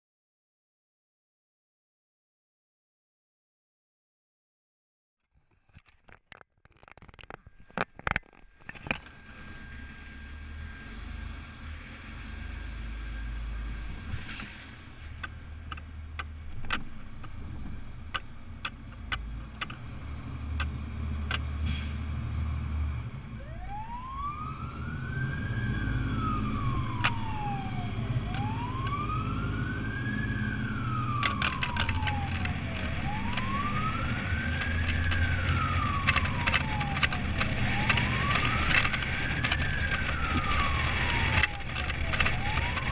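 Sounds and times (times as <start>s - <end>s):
rattles and clicks: 5.4s - 9.2s, 14.0s - 19.9s, 30.9s - 42.9s
fire engine diesel engine running: 8.7s - 42.9s
siren wailing: 22.4s - 42.9s.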